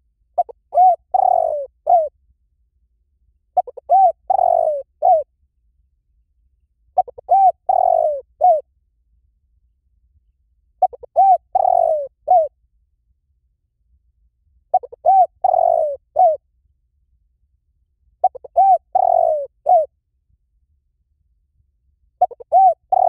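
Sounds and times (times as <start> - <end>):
dove cooing: 0.4 - 2.1, 3.6 - 5.3, 7.0 - 8.6, 10.8 - 12.5, 14.7 - 16.4, 18.2 - 19.9, 22.2 - 23.0.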